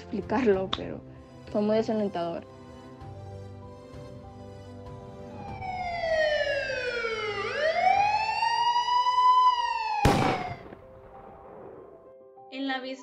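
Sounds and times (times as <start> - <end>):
soft background music: 0.0 - 13.0
siren wailing: 5.1 - 10.6.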